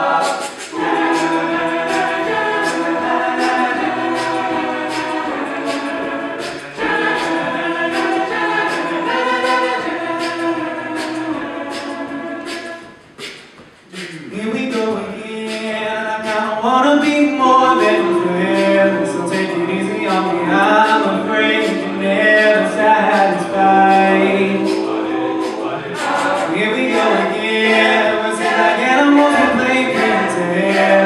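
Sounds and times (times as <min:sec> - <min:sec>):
male a cappella group singing: 0:00.0 - 0:31.0.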